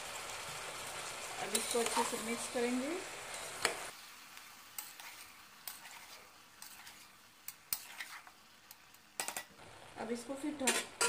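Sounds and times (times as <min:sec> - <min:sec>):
vegetables sizzling faintly: 0:00.0 - 0:11.0
spatula scraping metal pot: 0:04.8 - 0:07.1, 0:07.7 - 0:08.4.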